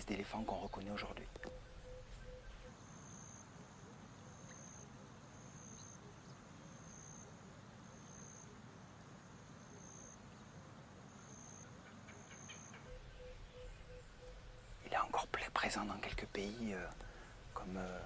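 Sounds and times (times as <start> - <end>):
low steady background hiss: 0.0 - 18.0
insect calling in high pulses: 11.1 - 16.0.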